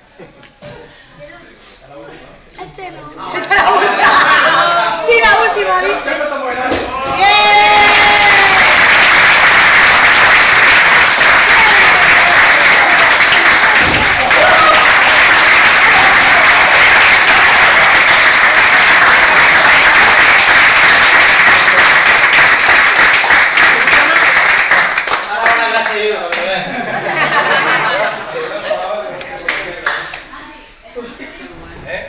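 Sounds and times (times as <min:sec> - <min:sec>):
people clapping: 0:06.4 - 0:27.7, 0:28.7 - 0:30.4.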